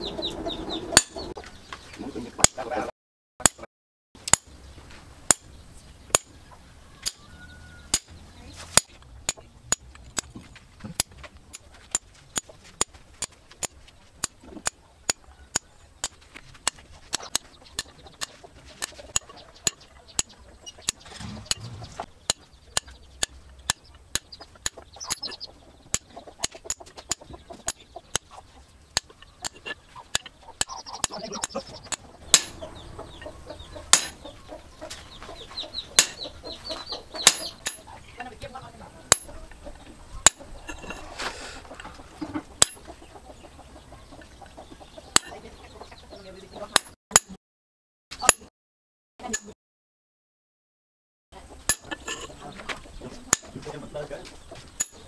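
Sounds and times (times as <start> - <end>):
hammer tapping steel chisel: 7.0 - 7.3, 7.9 - 8.2, 8.8 - 10.4, 11.0 - 21.7, 22.3 - 28.3, 29.0 - 32.8, 33.9 - 34.3, 36.0 - 36.4, 37.2 - 37.9, 39.1 - 39.4, 42.6 - 42.9, 45.2 - 45.4, 49.3 - 49.6, 53.3 - 53.7, 54.8 - 55.0.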